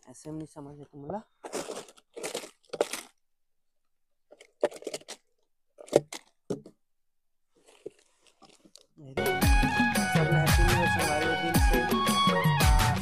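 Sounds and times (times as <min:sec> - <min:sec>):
plastic wrappers crinkling: 0:00.8 - 0:03.2, 0:04.3 - 0:06.7, 0:07.6 - 0:09.2
packets clattering together: 0:01.4 - 0:03.2, 0:04.3 - 0:06.7.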